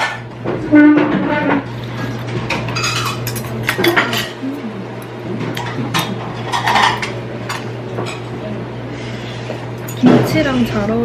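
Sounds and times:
steady low hum: 0:00.0 - 0:11.0
utensils clinking on ceramic bowl: 0:02.5 - 0:04.4, 0:05.6 - 0:08.3, 0:09.8 - 0:10.8.

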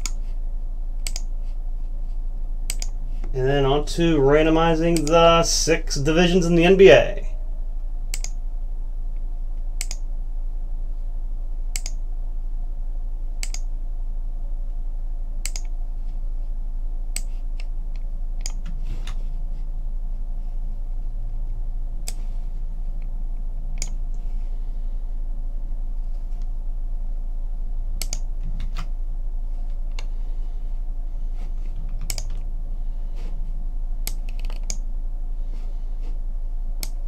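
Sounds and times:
computer mouse clicks: 0:00.0 - 0:00.2, 0:01.0 - 0:01.3, 0:02.7 - 0:03.0, 0:08.1 - 0:08.4, 0:09.8 - 0:10.0, 0:11.7 - 0:12.0, 0:13.4 - 0:13.7, 0:15.4 - 0:15.7, 0:28.0 - 0:28.9, 0:32.0 - 0:32.4, 0:34.0 - 0:34.8
low electrical hum: 0:00.0 - 0:37.0.

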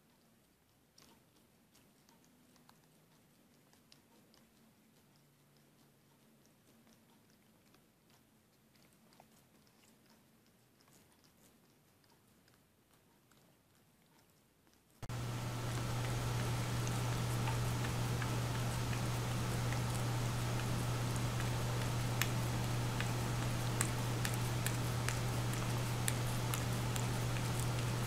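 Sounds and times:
cat licking a lollipop: 0:00.0 - 0:28.0
low hum: 0:15.0 - 0:28.0.

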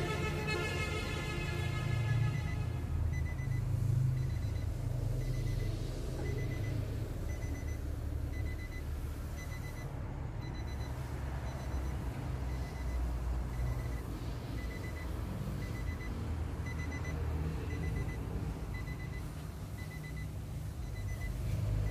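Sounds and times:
vehicle warning chime beeping: 0:02.2 - 0:21.9.

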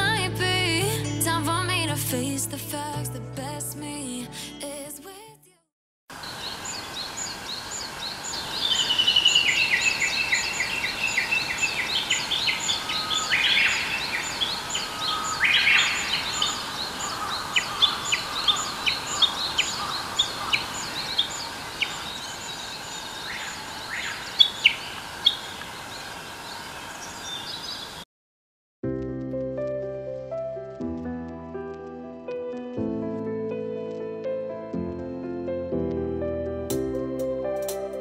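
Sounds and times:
sharp bird chirps: 0:06.2 - 0:25.6
bird trilled song: 0:06.2 - 0:28.0.

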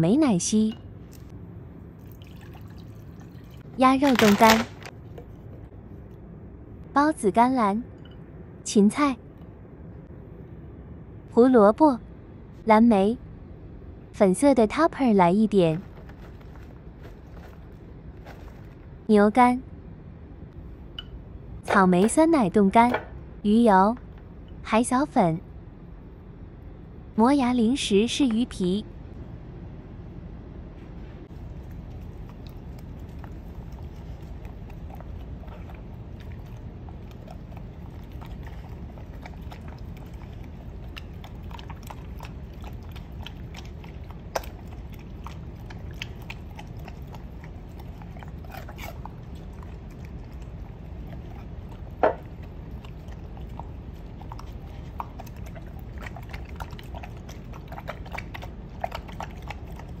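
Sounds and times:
puppy licking and chewing: 0:31.3 - 1:00.0.

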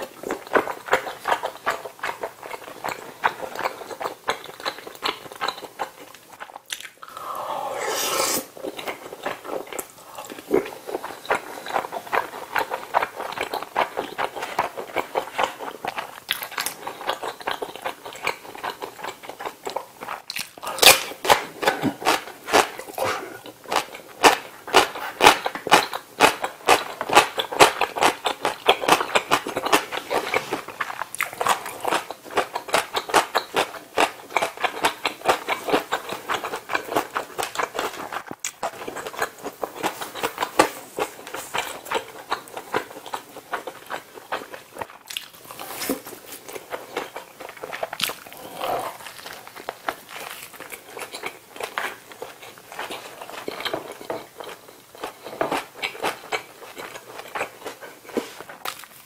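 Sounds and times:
chewing and crunching food: 0:00.0 - 0:07.9, 0:08.5 - 0:59.0
wet mouth clicks: 0:06.7 - 0:08.5.

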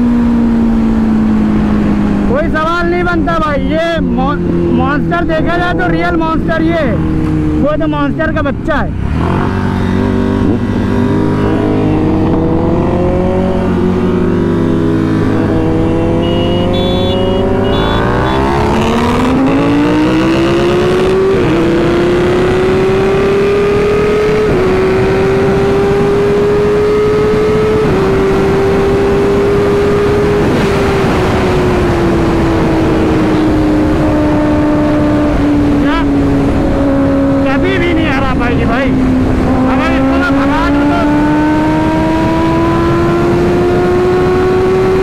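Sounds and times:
motorcycle engine accelerating: 0:08.9 - 0:45.0
wind rush on microphone: 0:18.6 - 0:45.0.

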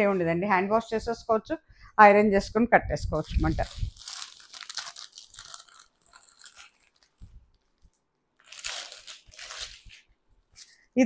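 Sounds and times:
plastic packet crinkling: 0:03.0 - 0:10.2.

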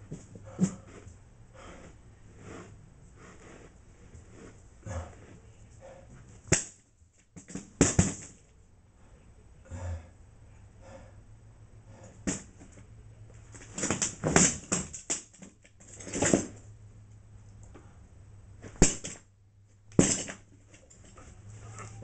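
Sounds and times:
person gasping and grunting: 0:04.8 - 0:05.3, 0:09.7 - 0:10.2.

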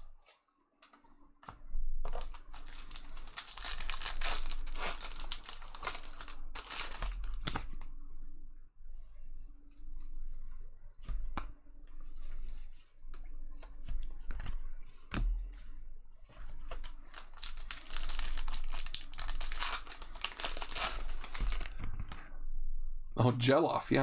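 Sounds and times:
foil wrappers tearing and crinkling: 0:02.1 - 0:07.7, 0:16.6 - 0:21.8.

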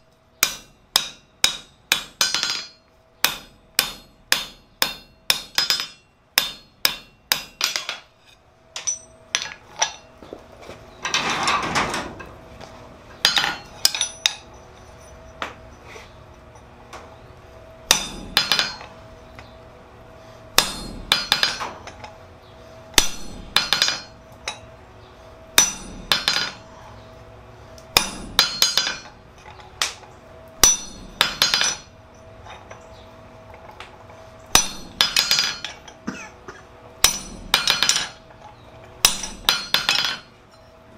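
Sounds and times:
hammer striking hot metal on anvil: 0:00.4 - 0:08.1, 0:08.8 - 0:10.1, 0:13.2 - 0:14.6, 0:17.9 - 0:18.9, 0:20.6 - 0:22.2, 0:23.0 - 0:24.7, 0:25.6 - 0:26.6, 0:27.8 - 0:29.2, 0:30.6 - 0:31.9, 0:34.5 - 0:36.2, 0:37.0 - 0:38.2, 0:39.0 - 0:40.7.

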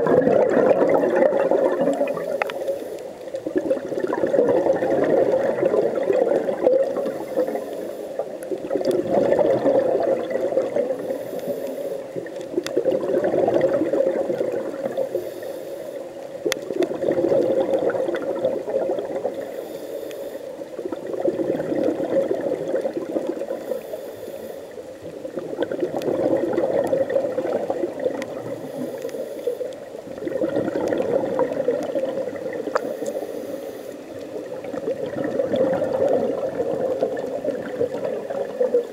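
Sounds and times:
bubbly underwater exhalations: 0:00.0 - 0:02.6, 0:03.4 - 0:07.6, 0:08.2 - 0:11.2, 0:12.2 - 0:15.1, 0:16.6 - 0:19.5, 0:20.8 - 0:23.8, 0:25.2 - 0:29.2, 0:29.8 - 0:33.3, 0:34.1 - 0:38.9
faint inhale hiss: 0:01.9 - 0:03.5, 0:06.8 - 0:08.7, 0:10.8 - 0:12.7, 0:14.7 - 0:16.7, 0:19.2 - 0:21.1, 0:23.2 - 0:25.4, 0:28.2 - 0:30.2, 0:31.8 - 0:34.8.

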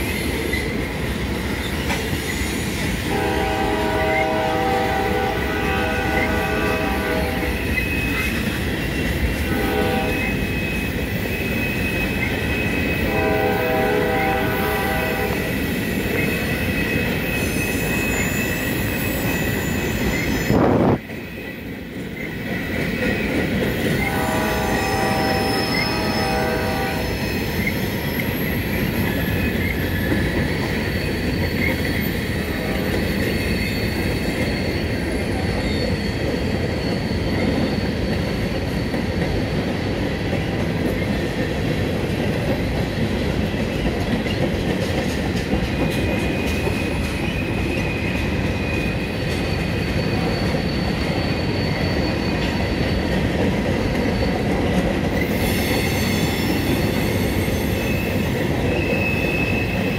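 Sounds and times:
train wheels rumbling on rails: 0:00.0 - 0:59.9
high wheel squeal: 0:10.1 - 0:13.1, 0:15.2 - 0:21.7, 0:23.0 - 0:39.6, 0:46.2 - 0:59.9.

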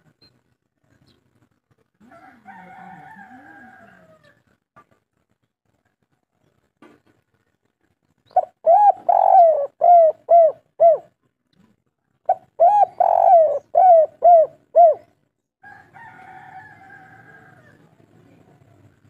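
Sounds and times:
dove cooing: 0:08.3 - 0:11.2, 0:12.3 - 0:15.2.

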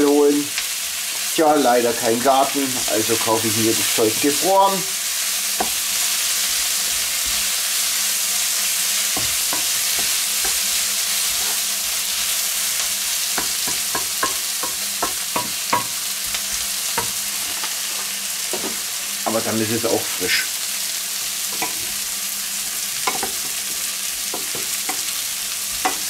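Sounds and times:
onions sizzling in a wok: 0:00.0 - 0:26.0
spatula scraping and knocking pan: 0:02.4 - 0:04.0, 0:09.0 - 0:11.7, 0:13.3 - 0:16.1, 0:16.9 - 0:19.4, 0:23.0 - 0:26.0.

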